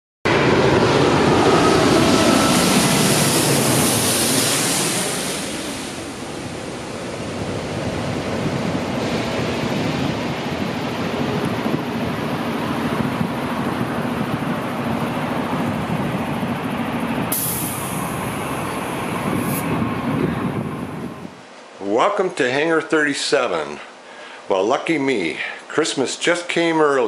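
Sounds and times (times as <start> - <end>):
jet airliner engines running: 0.3 - 21.5.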